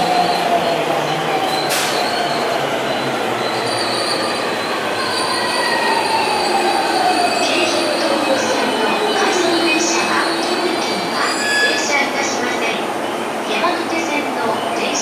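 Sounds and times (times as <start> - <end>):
high wheel squeal: 1.5 - 7.6, 8.5 - 12.1.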